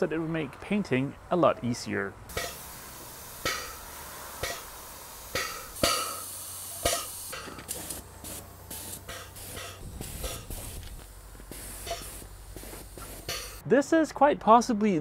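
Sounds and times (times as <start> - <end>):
paint sprayer hissing: 2.3 - 13.6.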